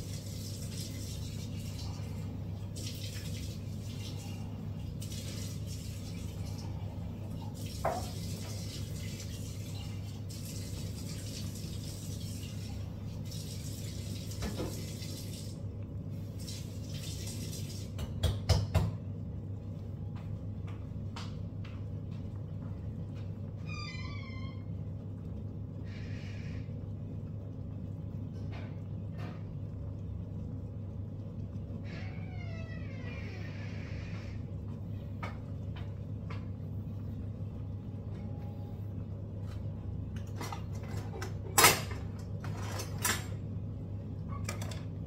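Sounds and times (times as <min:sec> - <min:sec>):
steady low hum: 0:00.0 - 0:11.2, 0:18.0 - 0:45.0
tap water running: 0:00.0 - 0:19.1.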